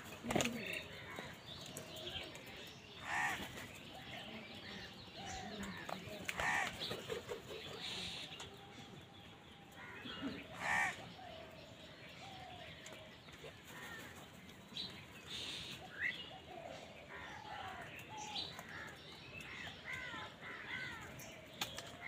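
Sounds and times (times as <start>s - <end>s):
crows cawing: 3.0s - 3.5s, 6.4s - 6.8s, 9.8s - 11.1s.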